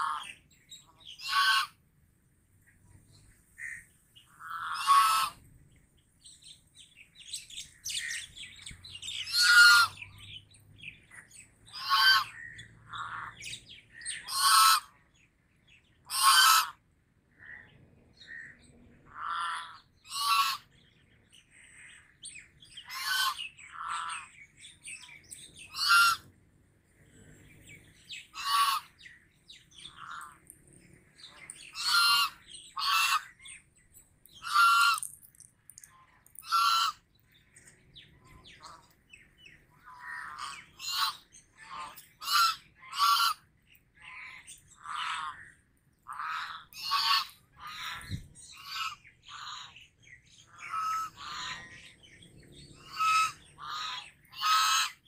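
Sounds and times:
geese honking: 1.0s - 1.8s, 4.4s - 5.4s, 9.2s - 10.1s, 11.7s - 13.4s, 14.1s - 14.9s, 16.1s - 16.8s, 19.1s - 20.7s, 22.8s - 24.3s, 25.6s - 26.3s, 28.1s - 30.4s, 31.2s - 33.6s, 34.3s - 37.0s, 39.7s - 49.8s, 50.4s - 52.0s, 52.7s - 55.0s.

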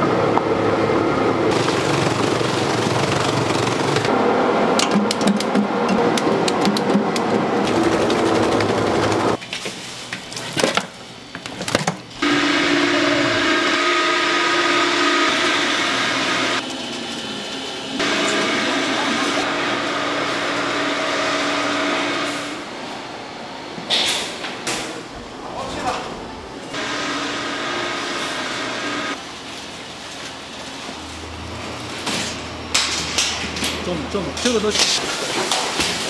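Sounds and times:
machine humming: 0.0s - 9.4s, 12.1s - 23.7s, 26.3s - 29.2s
machine whirring: 1.3s - 9.4s, 12.2s - 22.7s.

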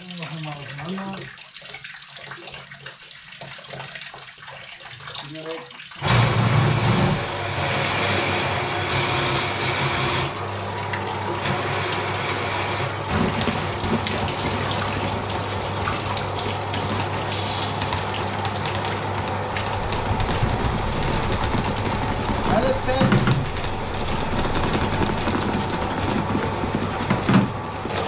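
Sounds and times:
water pouring into plastic tub: 0.0s - 28.0s
low motor hum: 6.0s - 28.0s.

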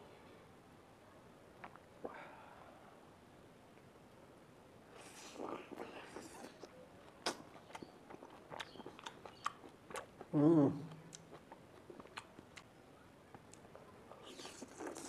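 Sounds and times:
chewing and mouth clicks: 5.0s - 10.3s, 10.9s - 12.7s, 13.3s - 15.0s
person humming: 10.3s - 11.0s.

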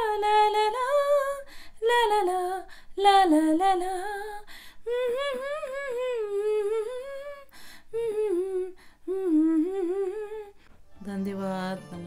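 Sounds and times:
breaths: 1.4s - 1.8s, 2.7s - 3.0s, 4.4s - 4.8s, 7.5s - 8.0s, 8.8s - 9.1s.

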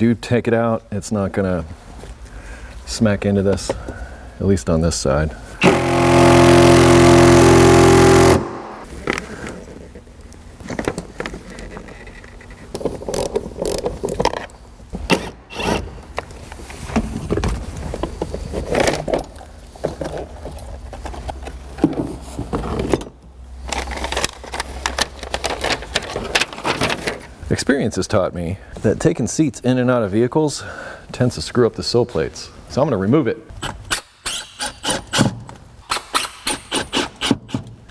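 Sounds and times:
cordless power tool running: 5.6s - 8.9s.

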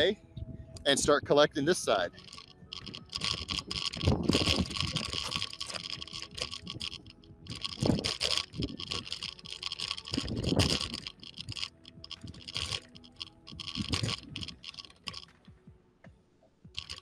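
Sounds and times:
wheel rolling over concrete: 2.2s - 15.2s.

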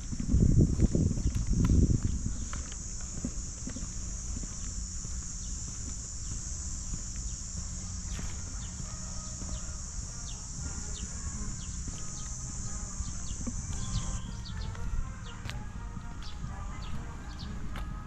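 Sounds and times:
steady high hiss: 0.0s - 14.4s
high bird chirps: 8.0s - 15.4s.

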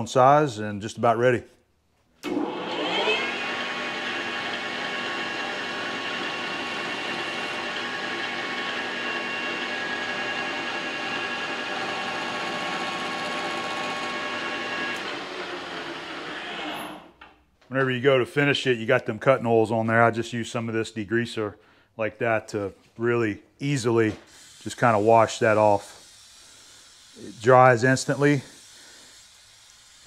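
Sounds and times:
metal lathe gear whine: 2.4s - 15.3s.

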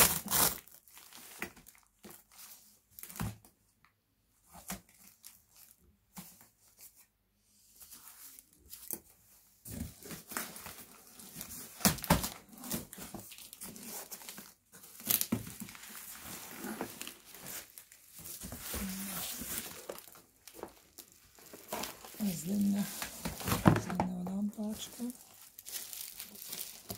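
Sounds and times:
cardboard box tearing: 0.0s - 0.8s
bubble wrap crinkling: 0.0s - 3.2s, 4.6s - 5.8s, 7.8s - 26.9s.

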